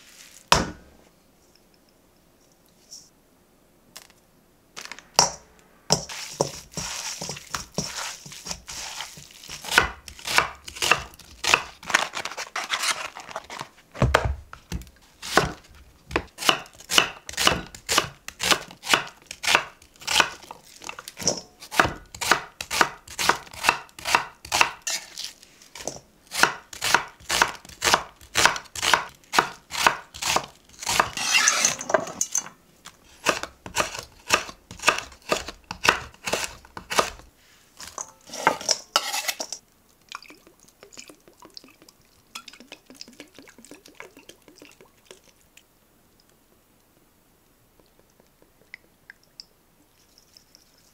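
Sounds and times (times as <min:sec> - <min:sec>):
knife chopping on wooden board: 0:05.2 - 0:11.7, 0:14.0 - 0:20.4, 0:21.7 - 0:24.8, 0:33.2 - 0:37.2.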